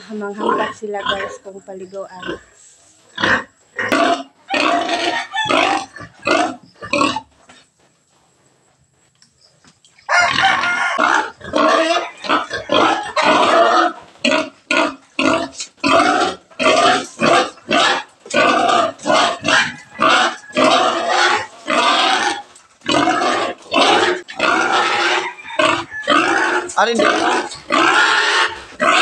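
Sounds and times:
pig calling loudly: 3.2s - 7.3s, 10.1s - 29.0s.

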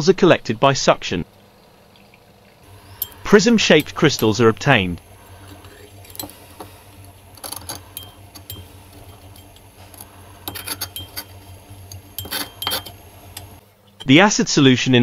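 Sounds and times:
low steady hum: 0.0s - 15.0s
metal spatula scraping glass beaker: 2.7s - 13.6s.

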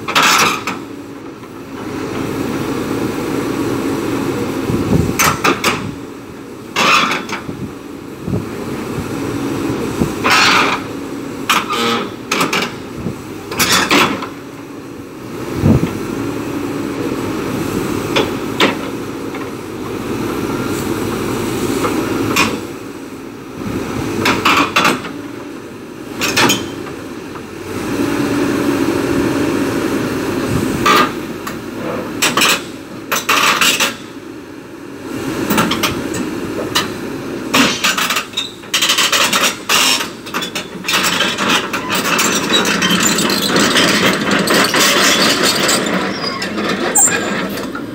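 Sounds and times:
steel tracks clanking on ramps: 0.0s - 2.7s, 4.9s - 6.0s, 6.7s - 7.6s, 9.9s - 14.4s, 17.7s - 22.8s, 24.2s - 25.4s, 26.1s - 27.5s, 30.5s - 34.1s, 35.4s - 47.9s
diesel engine running: 0.0s - 47.9s.

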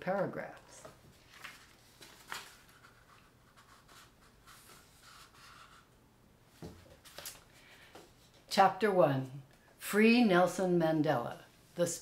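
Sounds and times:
book pages rustling: 0.1s - 5.8s, 6.6s - 8.5s.

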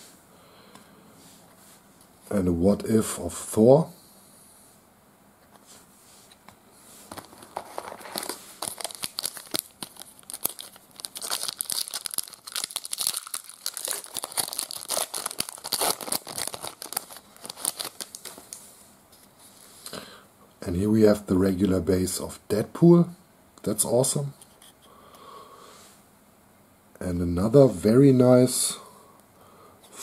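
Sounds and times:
wrapper tearing and crinkling: 7.2s - 18.6s.

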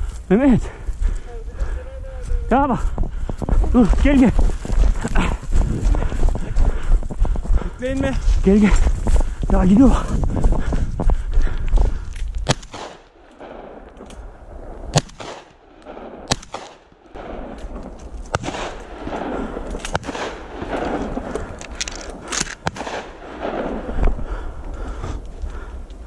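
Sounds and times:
steady rustling noise: 0.0s - 26.0s
gunshots: 12.4s - 13.9s, 14.9s - 21.4s, 22.1s - 24.1s.

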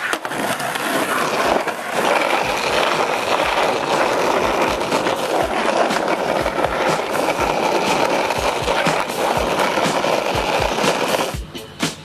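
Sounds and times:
wheels thumping over cracks: 0.0s - 11.4s
skateboard wheels rolling on asphalt: 0.0s - 12.0s.

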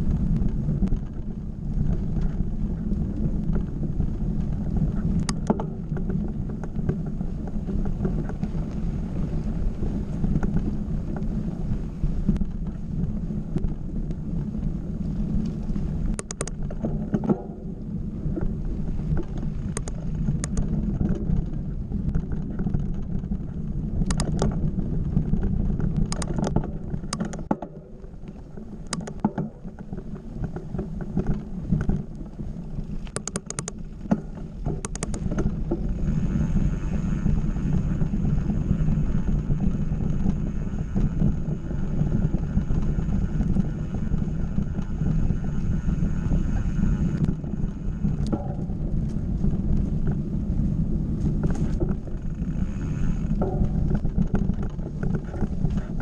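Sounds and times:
bike clicking and rattling: 0.0s - 56.0s
bike tyres rumbling on dirt: 0.0s - 56.0s
wind on microphone: 0.0s - 56.0s
faint high whine: 31.4s - 54.4s.

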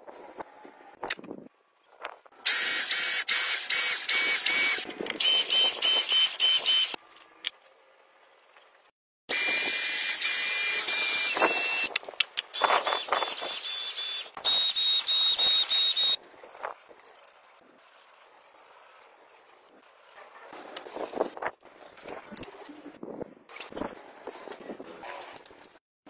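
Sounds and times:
electric pump hissing and whining: 2.4s - 7.0s, 9.3s - 11.9s, 12.6s - 16.2s.

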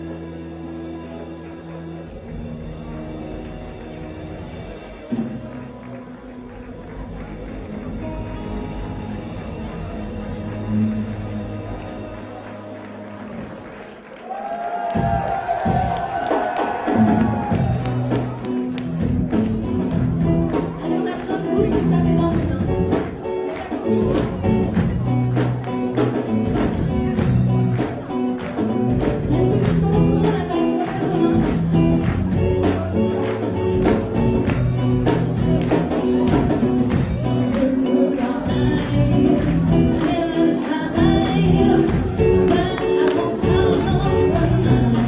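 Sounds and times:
guitar: 0.0s - 14.2s, 14.9s - 45.0s
live band playing: 0.0s - 45.0s
steady drum beat: 14.8s - 45.0s
person singing: 20.5s - 25.2s, 28.7s - 34.5s, 36.0s - 45.0s.

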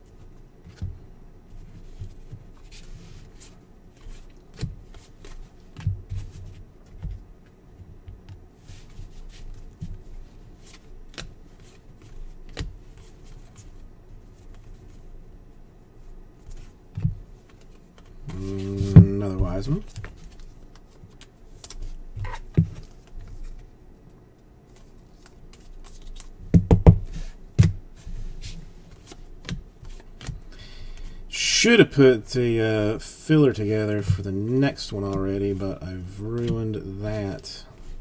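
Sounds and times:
trading cards rustling: 24.7s - 26.3s.

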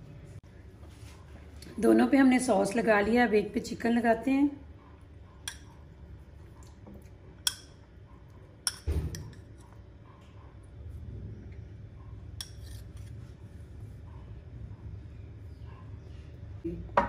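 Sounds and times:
metal spoon clinking ceramic bowl: 5.4s - 5.7s, 7.4s - 7.8s, 8.6s - 9.6s.

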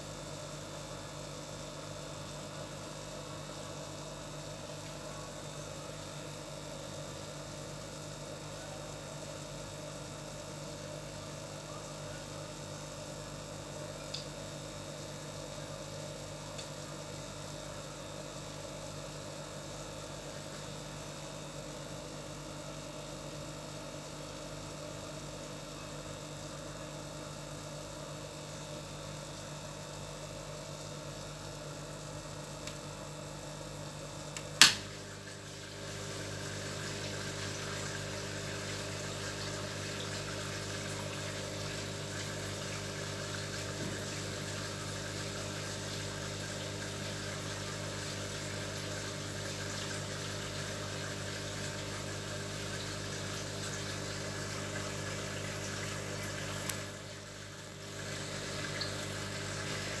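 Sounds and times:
pump humming: 0.0s - 60.0s
sharp click: 34.4s - 34.9s.

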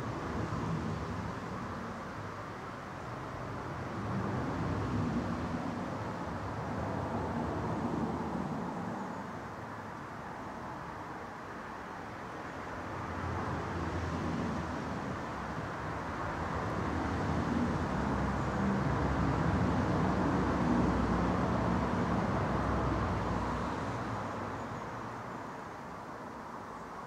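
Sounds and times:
passing vehicle rumble: 13.2s - 25.4s.

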